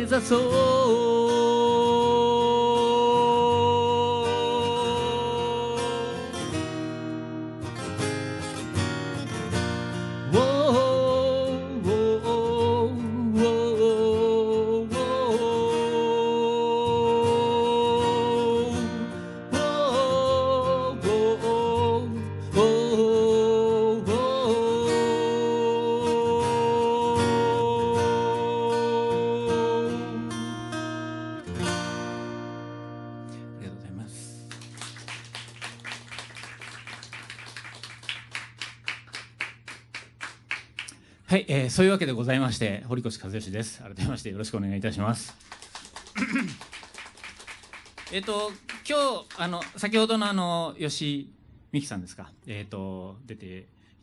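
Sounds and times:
strummed acoustic guitar: 0.0 - 36.9
man singing a long note: 10.3 - 30.3.

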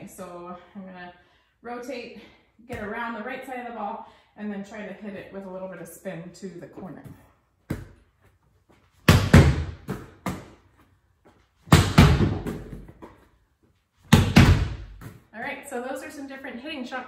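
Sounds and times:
ball bouncing thuds: 2.7 - 3.0, 6.9 - 8.0, 9.1 - 10.6, 11.7 - 13.3, 14.1 - 15.3
volleyball slapped by hand: 7.7 - 8.0, 9.1 - 10.6, 11.7 - 13.2, 14.1 - 15.2.

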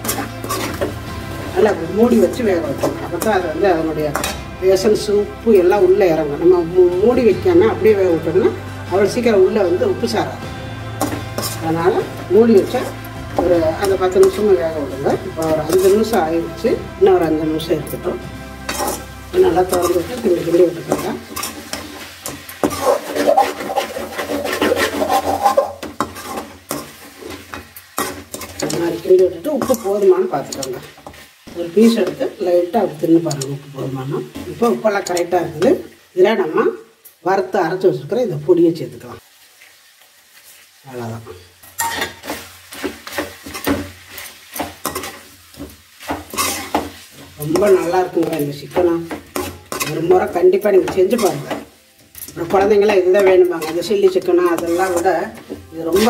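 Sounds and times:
metal spatula scraping a pan: 0.0 - 6.3, 7.0 - 33.6, 41.6 - 56.0
spatula clinking against pan: 41.7 - 42.3.

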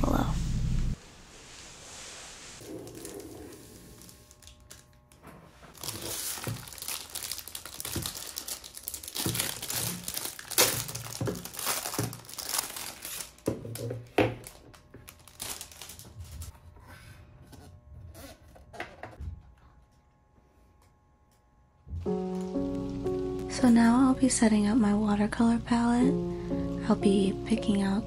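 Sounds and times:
plastic wrap crinkling and tearing: 2.6 - 16.5.

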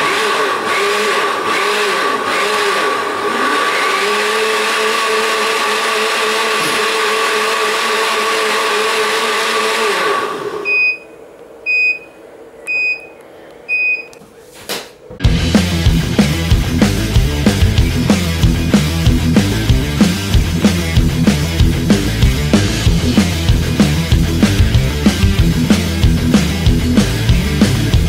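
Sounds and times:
blender motor whirring: 0.0 - 10.7
short high beeps: 10.7 - 11.1, 11.7 - 13.1, 13.7 - 14.2.

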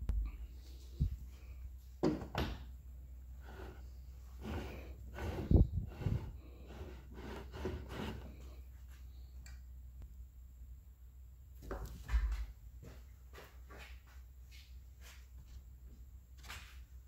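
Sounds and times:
low steady hum: 0.0 - 17.0
plastic tube scraping on metal: 4.4 - 8.4.

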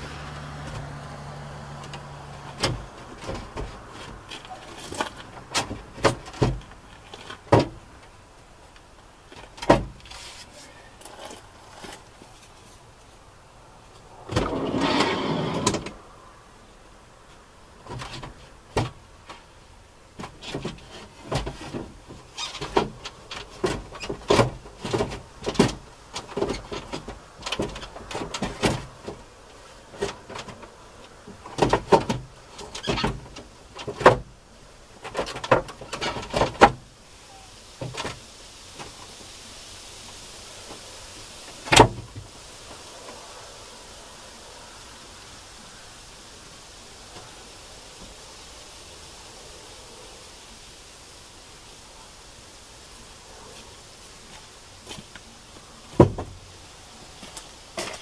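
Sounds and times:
knocks clunks and clicks: 1.8 - 8.2, 20.2 - 29.2, 30.0 - 34.3, 55.9 - 56.4
loud scraping sliding noise: 10.1 - 12.0, 14.2 - 16.0.

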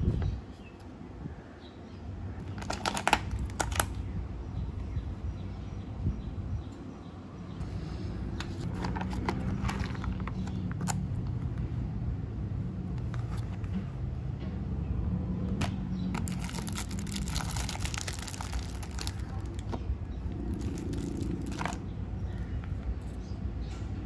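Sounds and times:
steady low hum: 0.0 - 24.0
plastic packaging crinkling: 2.4 - 4.0, 15.6 - 19.8, 20.4 - 21.8.

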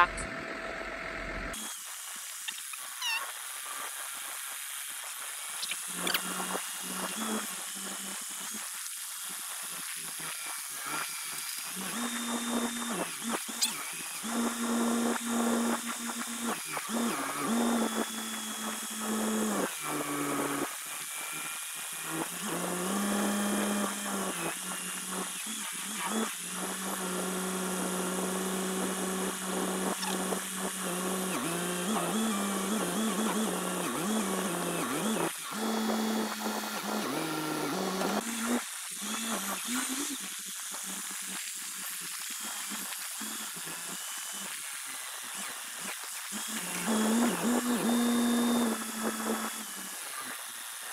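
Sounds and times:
forklift engine and hydraulics: 0.0 - 1.9.

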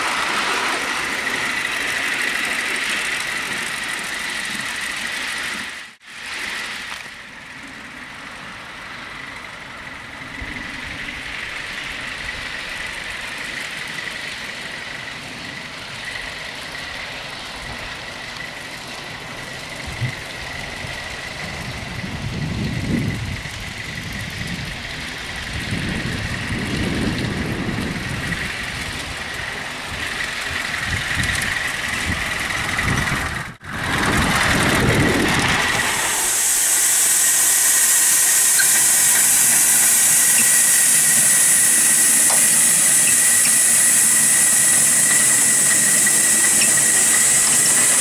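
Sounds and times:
locomotive rumble: 0.0 - 48.0
steam hiss with high tone: 35.2 - 48.0.

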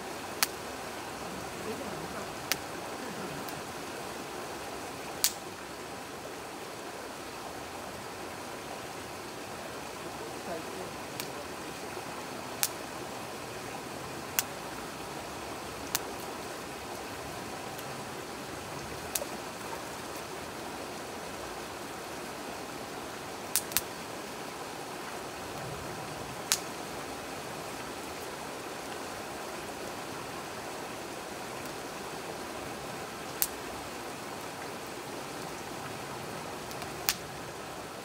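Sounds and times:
river rushing: 0.0 - 38.0
wood fire crackling: 0.4 - 4.4, 5.1 - 5.4, 23.5 - 23.9, 26.4 - 26.8, 36.5 - 37.2.

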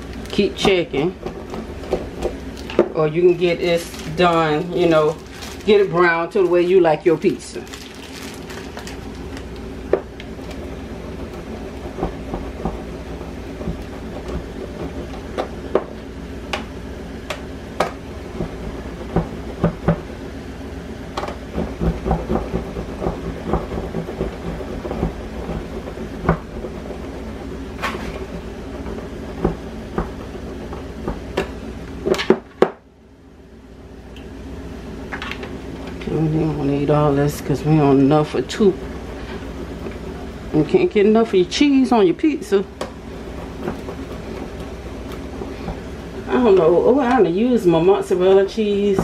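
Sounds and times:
steady hum: 0.0 - 49.0.

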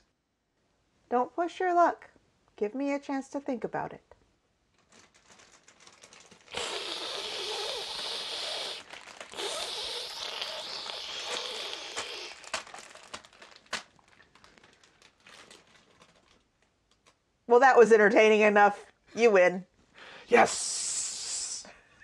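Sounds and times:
crinkling rustling: 4.7 - 17.2.

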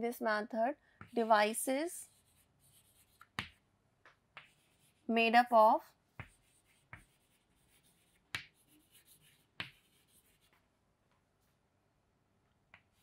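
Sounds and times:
chalk tapping on board: 1.0 - 1.4, 2.1 - 5.0, 6.1 - 10.6
chalk scratching on chalkboard: 1.0 - 3.6, 4.4 - 5.1, 5.7 - 10.6.

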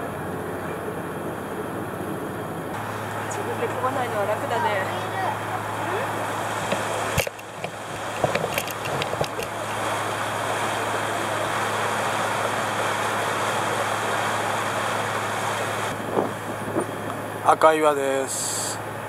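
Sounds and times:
boat engine hum: 0.0 - 19.0
wind and water rushing: 0.0 - 19.0
sharp knocks and clicks: 6.6 - 9.8.

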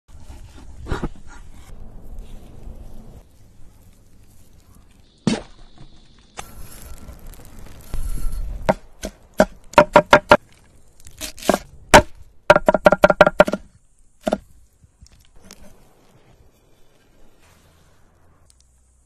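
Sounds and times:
knife chopping on wooden board: 11.2 - 14.4.

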